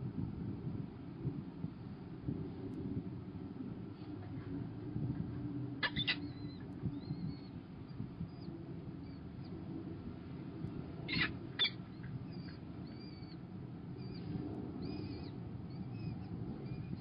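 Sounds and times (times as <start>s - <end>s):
falcon chicks cheeping: 5.8s - 7.5s, 11.1s - 13.4s
harsh bird calls: 5.8s - 7.5s, 11.1s - 13.4s.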